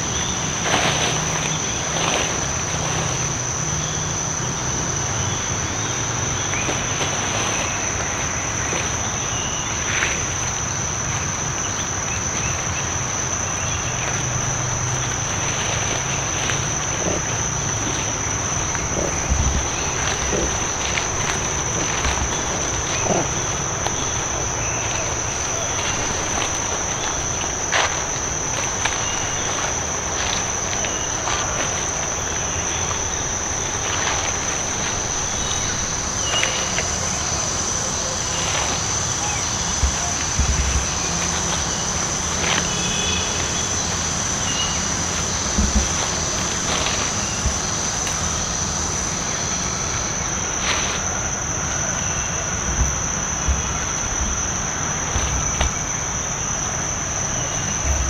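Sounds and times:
insects droning: 0:00.0 - 0:58.0
low thumps: 0:14.9 - 0:37.7, 0:39.5 - 0:42.5, 0:45.2 - 0:48.4.

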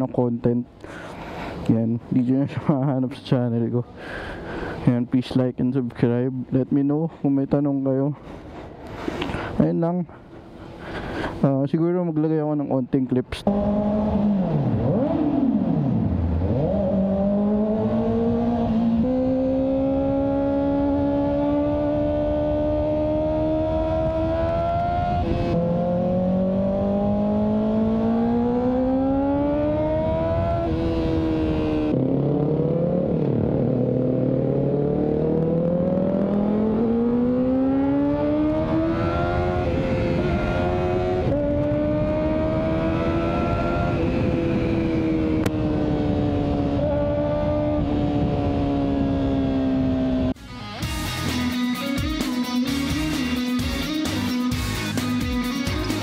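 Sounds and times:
motorcycle engine revving: 0:13.4 - 0:50.4.

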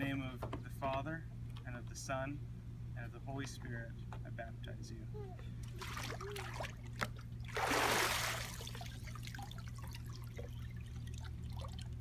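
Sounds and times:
splashing water: 0:05.6 - 0:12.0
water dripping into pool: 0:05.7 - 0:12.0.

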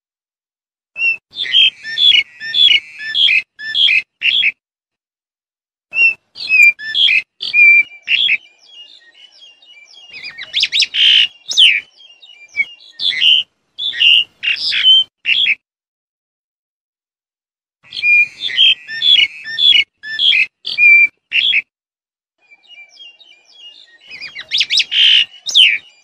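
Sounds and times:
starling calling: 0:01.0 - 0:04.6, 0:05.9 - 0:15.6, 0:17.8 - 0:21.6, 0:22.4 - 0:26.0.

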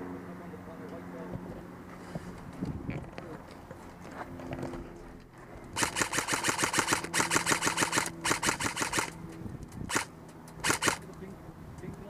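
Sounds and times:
airsoft rifle firing bursts: 0:05.8 - 0:09.2, 0:09.9 - 0:11.0.

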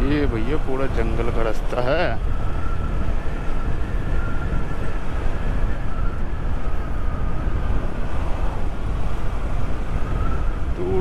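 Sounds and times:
wind rumble on microphone: 0:00.0 - 0:11.0.

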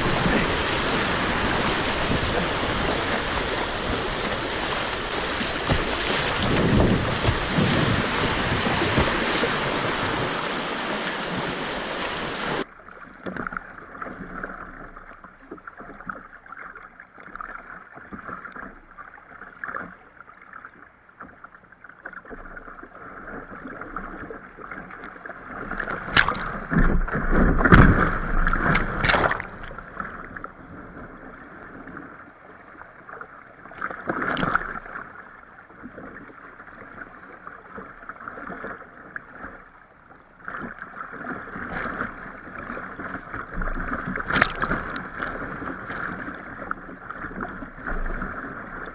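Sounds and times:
whitewater rushing: 0:00.0 - 0:12.7
water splashing against boat: 0:00.0 - 0:48.9.

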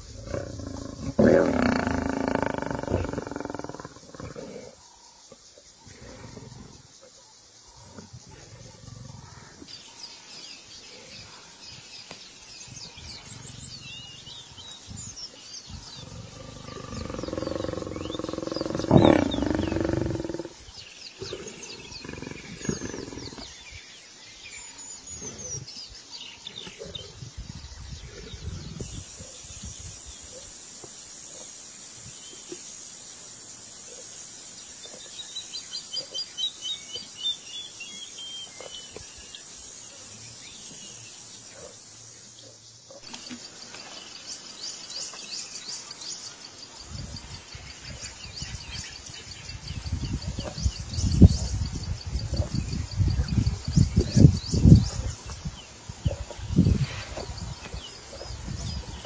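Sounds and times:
lions growling and snarling: 0:00.0 - 0:04.9, 0:05.8 - 0:09.7, 0:12.6 - 0:14.8, 0:15.6 - 0:23.9, 0:25.0 - 0:29.5
birds chirping: 0:00.0 - 0:59.0.

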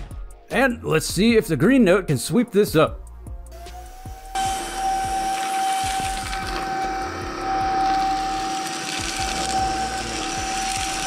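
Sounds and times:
stick vacuum running on carpet: 0:03.6 - 0:11.0.

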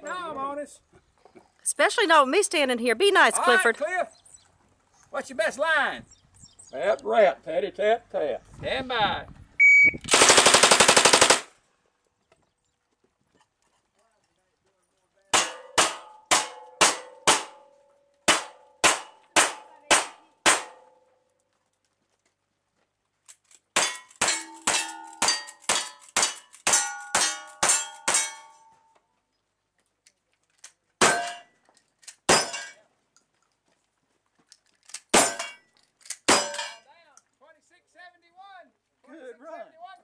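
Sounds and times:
rapid rifle shots: 0:10.1 - 0:11.6
pistol shots: 0:15.4 - 0:17.6, 0:18.3 - 0:20.9
steel targets clanging: 0:23.8 - 0:28.8, 0:31.0 - 0:31.5, 0:32.3 - 0:32.8, 0:35.2 - 0:35.7, 0:36.3 - 0:36.9.

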